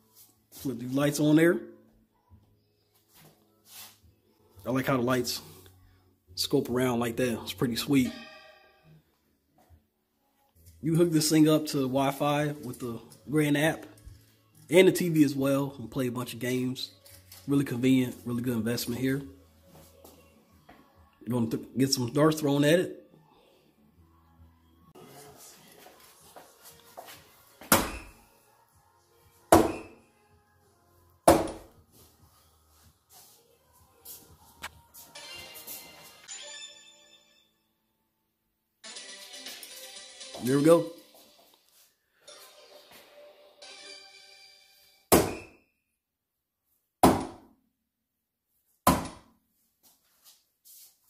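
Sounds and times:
darts hitting electronic dartboard: 0:27.6 - 0:28.2, 0:29.5 - 0:30.0, 0:31.3 - 0:31.7, 0:45.1 - 0:45.6, 0:47.0 - 0:47.5, 0:48.9 - 0:49.3.

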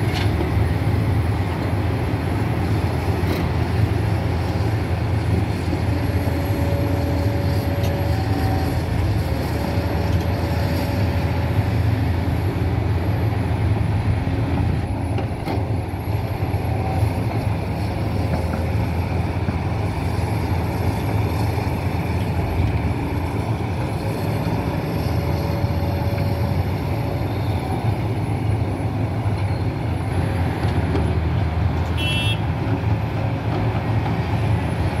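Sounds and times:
excavator diesel engines droning: 0:00.0 - 0:35.0.

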